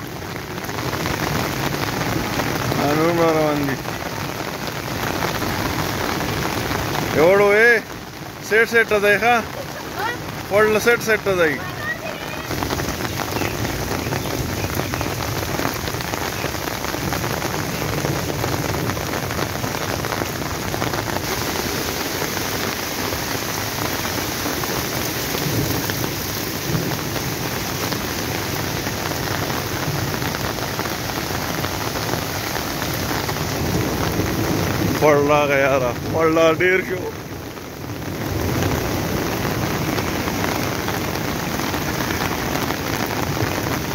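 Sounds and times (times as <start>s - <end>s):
heavy rain on wet ground: 0.0s - 43.9s.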